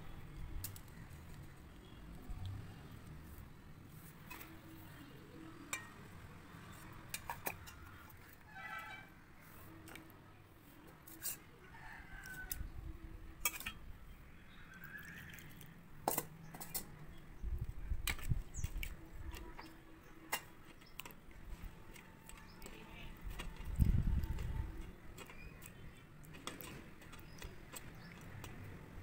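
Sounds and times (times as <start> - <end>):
dough squeezed in water: 14.6 - 15.8.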